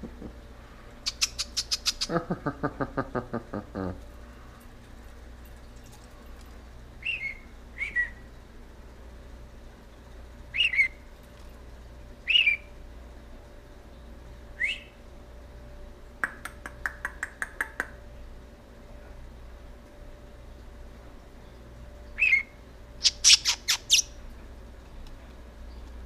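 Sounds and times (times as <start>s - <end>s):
budgerigar chirping: 1.1s - 2.1s, 7.0s - 8.1s, 10.5s - 11.0s, 12.3s - 12.7s, 22.2s - 24.1s.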